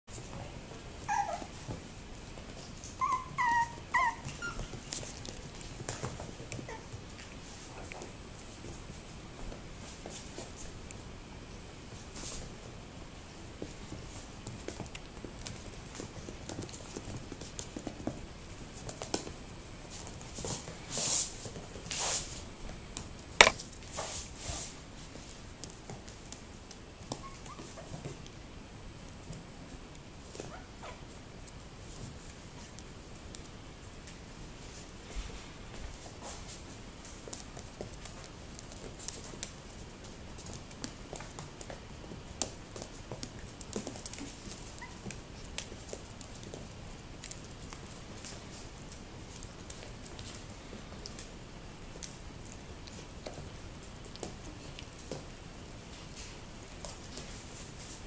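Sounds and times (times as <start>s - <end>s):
puppy paws pattering on floor: 0.1s - 58.0s
puppies whining: 1.0s - 1.6s, 2.8s - 4.9s, 27.1s - 27.8s, 44.7s - 45.1s.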